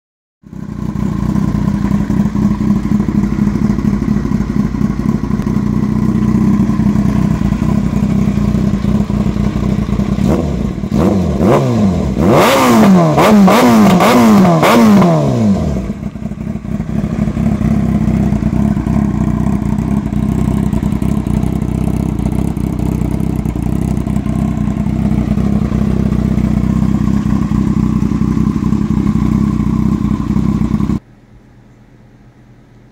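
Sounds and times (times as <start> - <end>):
motorcycle engine idling: 0.5 - 31.0
motorcycle engine revving: 0.5 - 31.0.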